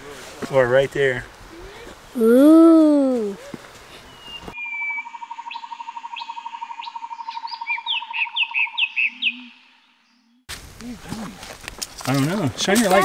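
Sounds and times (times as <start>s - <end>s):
descending whistled bird notes: 4.1s - 10.5s
bird pulsing trill: 4.6s - 10.4s.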